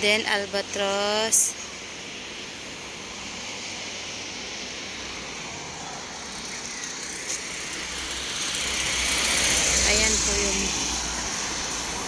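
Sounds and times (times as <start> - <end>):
road traffic hiss: 0.0 - 12.0
car approaching: 2.8 - 12.0.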